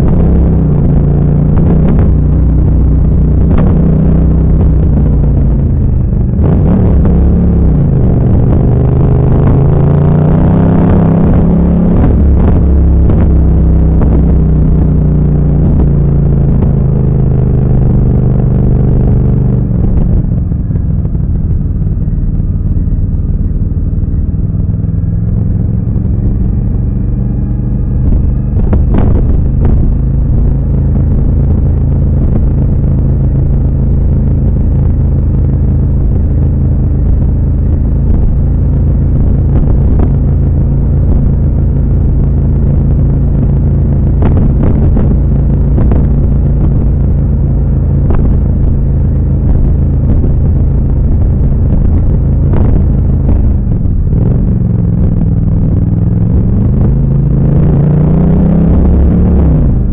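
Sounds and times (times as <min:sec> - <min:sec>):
motorcycle engine while riding: 0:00.0 - 0:59.9.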